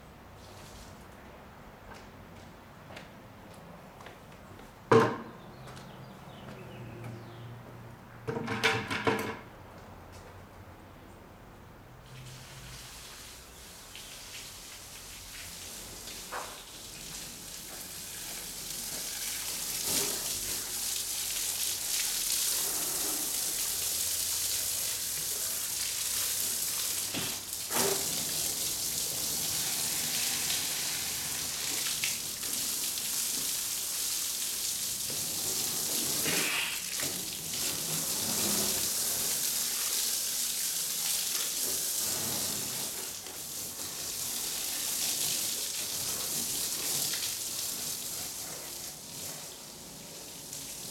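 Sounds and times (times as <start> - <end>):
hose water spraying on car: 12.0 - 50.9.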